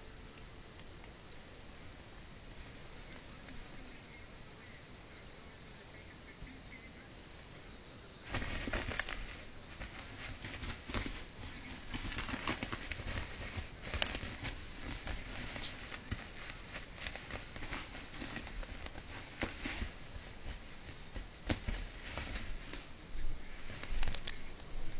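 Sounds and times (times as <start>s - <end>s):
paws rustling and scratching on fabric: 8.2s - 22.9s.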